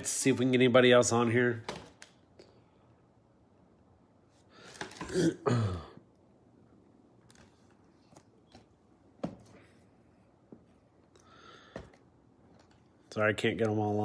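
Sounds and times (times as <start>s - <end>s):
man clearing his throat: 5.0s - 6.0s.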